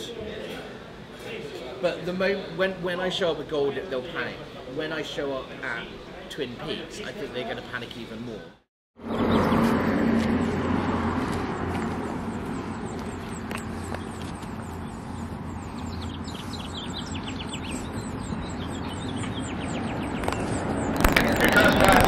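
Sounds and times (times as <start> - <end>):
low engine hum: 9.0 - 22.0
passing road traffic: 9.0 - 22.0
small birds chirping: 11.2 - 22.0.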